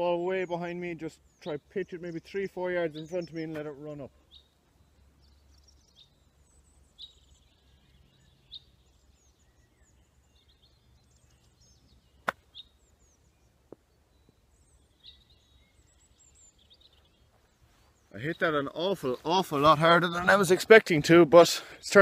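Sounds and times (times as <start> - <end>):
bird chirps: 0.0 - 21.0
golf club striking ball: 12.2 - 12.5.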